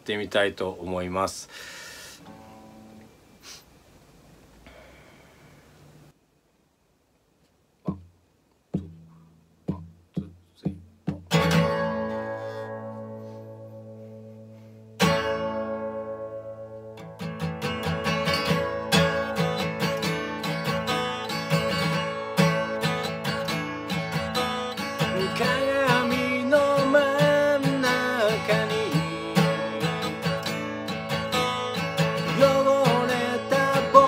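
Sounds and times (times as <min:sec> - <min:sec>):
acoustic guitar strumming: 0:02.2 - 0:03.3, 0:08.7 - 0:34.0.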